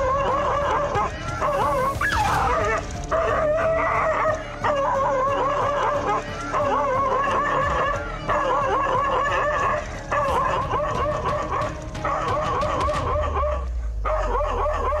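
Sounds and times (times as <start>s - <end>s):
dog barking: 10.1s - 15.0s.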